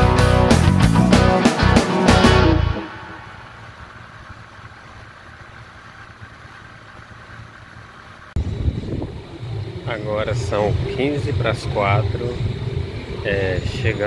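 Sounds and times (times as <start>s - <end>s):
guitar music: 0.0s - 3.6s
loud sound: 0.0s - 5.1s
motorcycle engine cruising: 0.0s - 14.0s
road noise: 0.0s - 14.0s.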